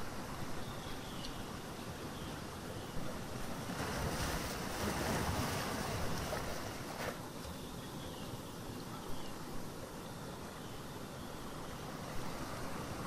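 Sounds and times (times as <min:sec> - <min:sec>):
ocean waves breaking: 0:03.1 - 0:07.2, 0:11.8 - 0:13.0.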